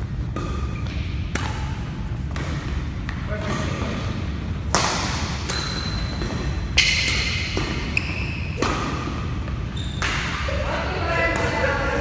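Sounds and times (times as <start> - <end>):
racket hitting shuttlecock: 0.2 - 4.0, 4.6 - 12.0
shoe squeaks: 5.4 - 8.6, 9.5 - 10.4.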